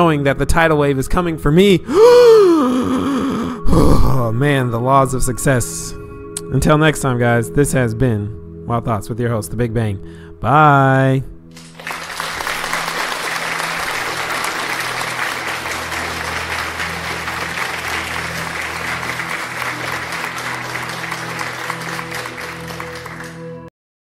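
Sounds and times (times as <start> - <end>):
sustained low music notes: 2.8 - 23.7
crowd applause: 11.6 - 23.7.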